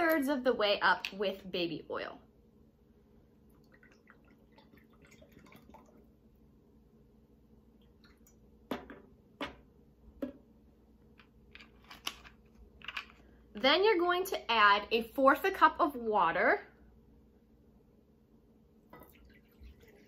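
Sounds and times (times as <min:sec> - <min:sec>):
oil trickling into a jar: 0:03.6 - 0:06.1.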